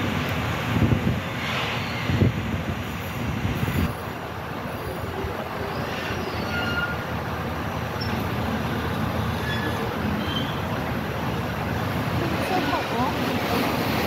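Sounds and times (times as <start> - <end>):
ferry engine rumbling: 0.0 - 14.0
faint high squeaks: 5.7 - 7.0, 9.3 - 10.6.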